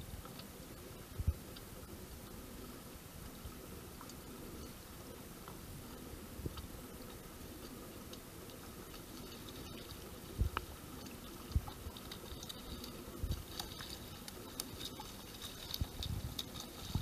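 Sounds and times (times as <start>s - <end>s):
small waves lapping: 2.4s - 17.0s
water drips: 6.4s - 17.0s.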